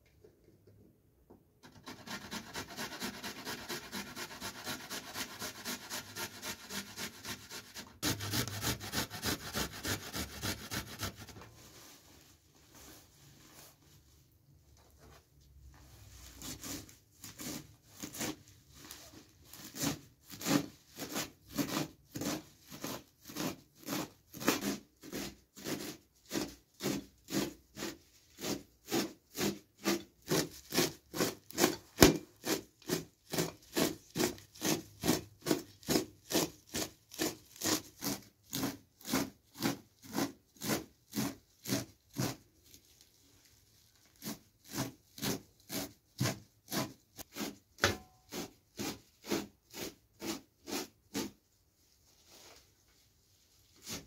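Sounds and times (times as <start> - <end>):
knife chopping herbs on metal tray: 1.7 - 11.2, 19.7 - 42.4, 44.2 - 51.3.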